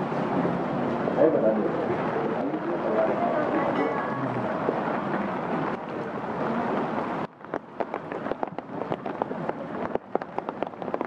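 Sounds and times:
rain hiss: 4.4s - 11.0s
heavy raindrops tapping: 7.2s - 11.0s.

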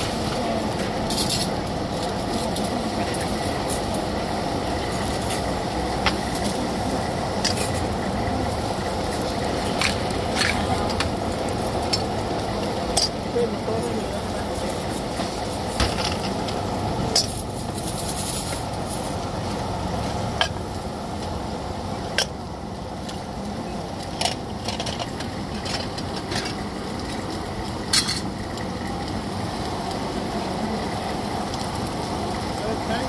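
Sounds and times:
pot lids clinking against pots: 27.9s - 28.3s.

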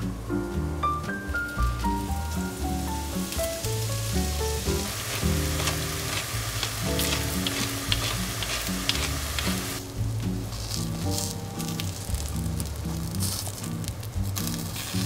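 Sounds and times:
background music: 0.0s - 15.0s
mushrooms sizzling in oil: 1.5s - 15.0s
wooden spatula scraping pan: 4.7s - 9.8s.

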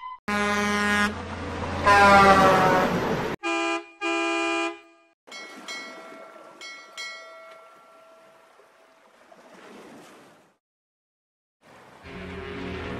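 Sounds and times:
truck engine rumble: 0.3s - 3.4s
rail car horn tooting: 0.3s - 5.1s
truck air horn blasting: 0.3s - 5.2s.

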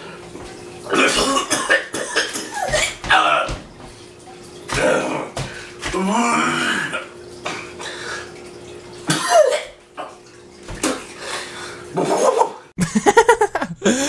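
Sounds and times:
man gagging and coughing: 0.9s - 3.5s, 9.1s - 9.8s, 12.1s - 14.0s.

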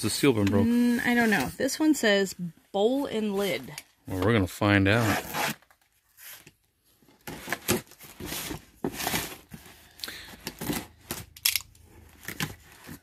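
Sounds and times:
tape and cardboard tearing: 4.9s - 6.5s.

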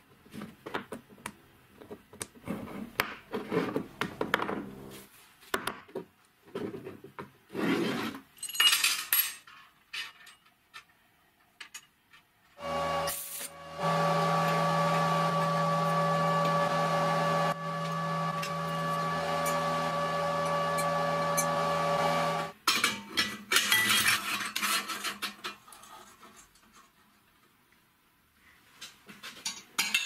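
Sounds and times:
electric arc welding buzz: 12.6s - 22.5s
steel parts clinking: 13.0s - 13.6s.

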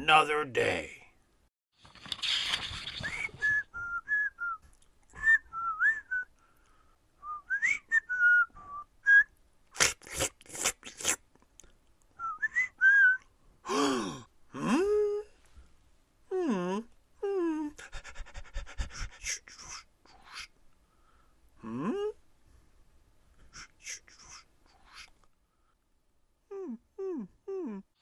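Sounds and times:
book page turning: 1.8s - 3.5s
man whistling a tune: 3.0s - 4.6s, 5.2s - 6.3s, 7.2s - 9.3s, 12.2s - 13.2s.

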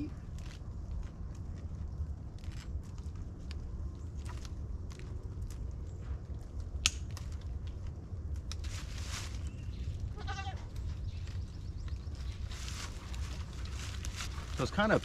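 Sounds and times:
short rustle: 8.6s - 9.8s, 12.2s - 15.0s
goat bleating: 10.1s - 10.7s.

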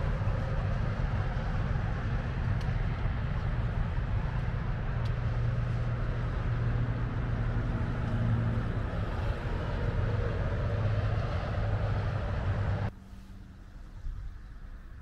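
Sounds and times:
diesel locomotive engine drone: 0.0s - 15.0s
train rumble: 0.0s - 15.0s.

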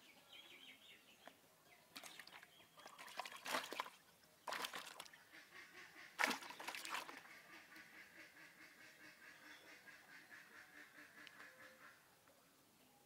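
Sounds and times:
fish splashing in a bucket: 1.9s - 5.2s, 6.2s - 7.3s.

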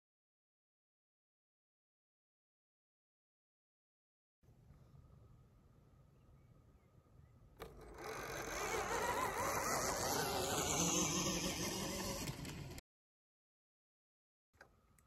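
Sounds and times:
electric motor whine: 7.6s - 12.8s.

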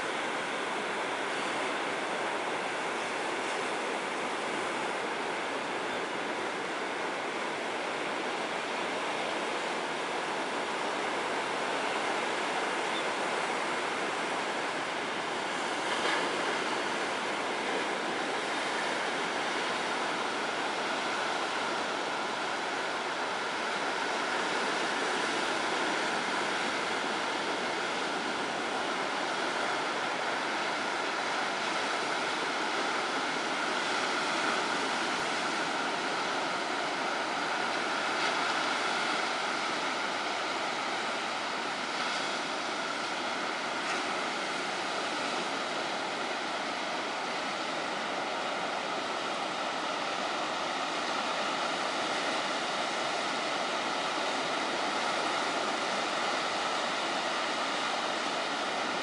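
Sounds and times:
sea surf breaking: 0.0s - 59.0s.

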